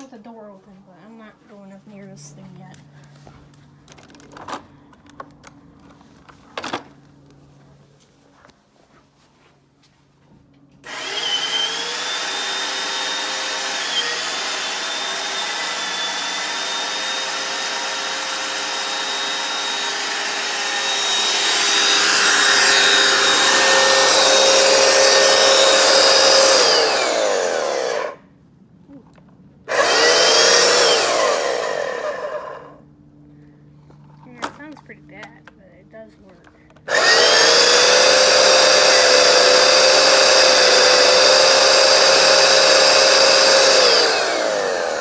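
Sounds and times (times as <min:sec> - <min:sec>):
carpet washer motor whining: 0:10.8 - 0:28.2, 0:29.7 - 0:32.8, 0:36.9 - 0:45.0.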